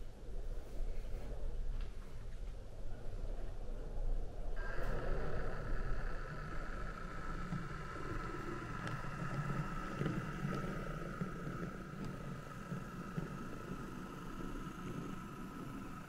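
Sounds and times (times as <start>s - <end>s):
model locomotive whine and rumble: 0.0s - 16.0s
faint clicks: 4.6s - 16.0s.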